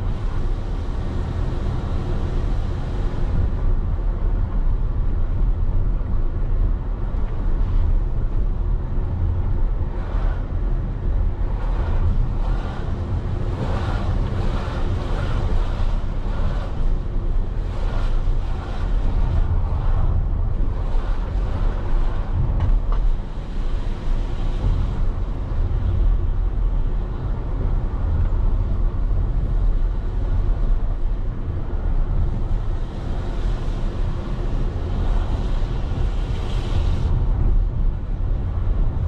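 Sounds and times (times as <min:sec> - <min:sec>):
road noise: 0:00.0 - 0:39.0
vehicle engine rumble: 0:00.0 - 0:39.0.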